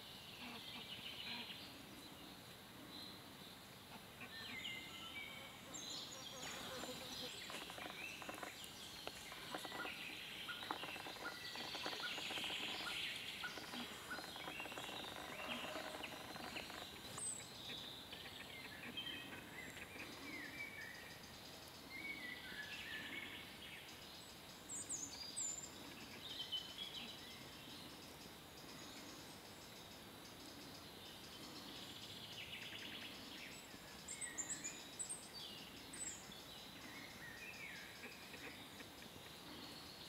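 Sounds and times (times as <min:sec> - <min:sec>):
birds singing and chirping: 0:04.2 - 0:40.0
faint clicks and rustles: 0:06.5 - 0:17.4.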